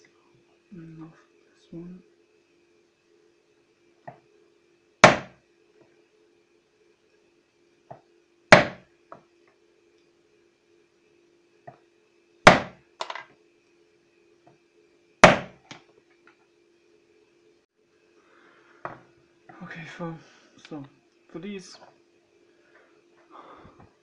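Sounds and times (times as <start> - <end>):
hammer striking metal punch: 5.0 - 5.4, 8.5 - 8.8, 12.5 - 12.8, 15.2 - 15.6.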